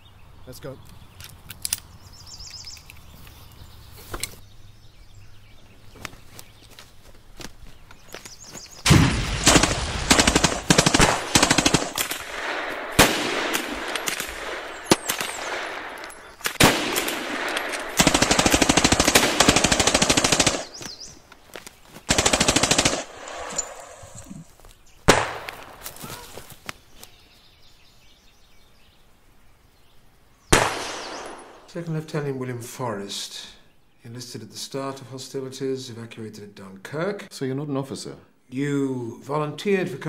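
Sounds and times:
single sharp gunshot: 8.8 - 10.1, 12.0 - 15.7, 25.1 - 25.8, 30.5 - 31.6
rapid automatic gunfire: 8.9 - 15.7, 16.6 - 20.8, 22.1 - 23.3.

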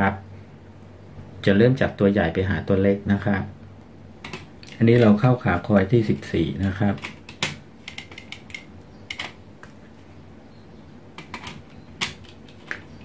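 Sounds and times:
wire leads clicking and tapping: 3.8 - 9.9, 11.2 - 13.0.

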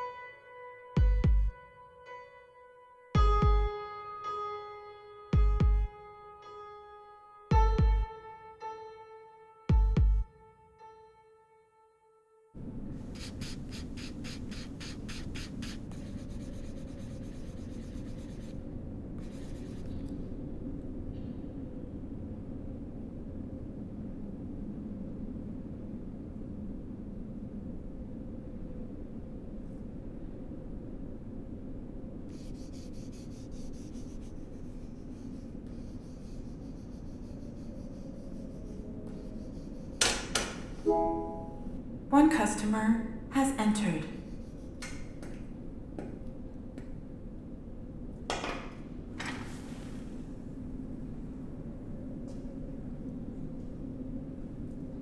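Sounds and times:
steady low hum: 12.6 - 49.2
charcoal scratching on paper: 13.1 - 18.6, 19.2 - 20.0, 32.3 - 40.0.

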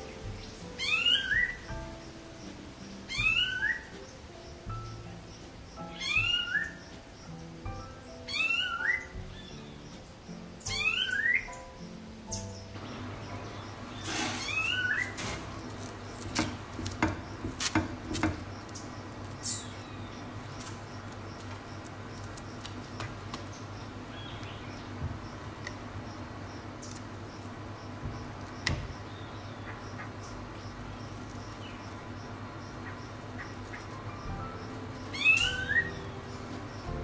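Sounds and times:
short high squeaky chirps: 14.0 - 15.3, 35.2 - 36.0
steady low hum: 15.1 - 37.0
hand patting batter on griddle: 15.4 - 18.8.

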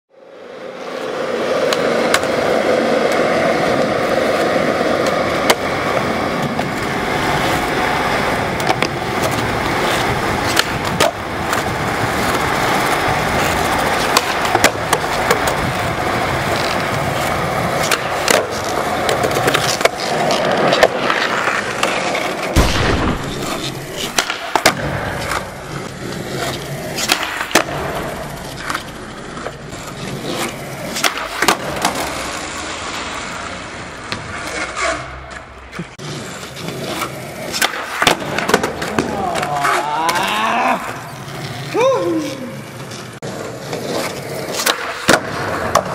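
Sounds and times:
skateboard wheels rolling on concrete: 0.1 - 45.9
skateboard popping and landing: 0.5 - 45.9.

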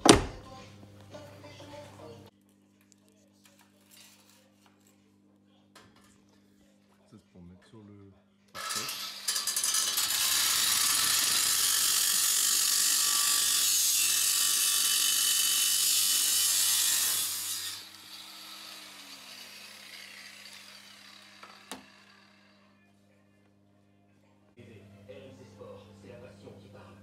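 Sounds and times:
power tool rasping on metal: 8.6 - 22.7.

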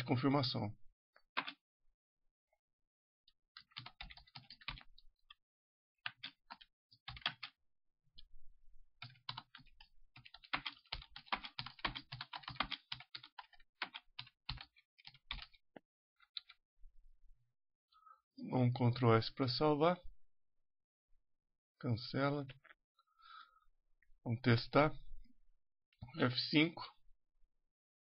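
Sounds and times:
typing on computer keyboard: 1.4 - 1.6, 3.6 - 4.9, 6.0 - 7.5, 9.0 - 15.6.

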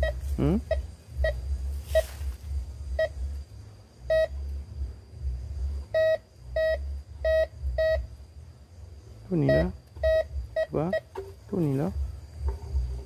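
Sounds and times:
metal detector beeping: 0.0 - 2.1, 4.1 - 4.4, 6.0 - 8.0, 9.4 - 11.1
low rumbling noise: 0.0 - 13.0.

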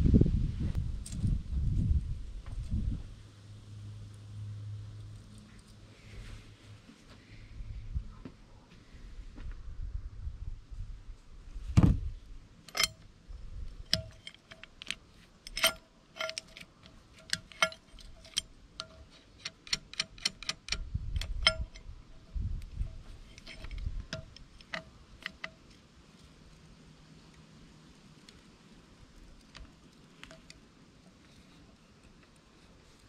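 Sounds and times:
low thuds: 11.7 - 12.1
metal tool clicking and clinking: 12.7 - 13.1, 13.8 - 25.8.

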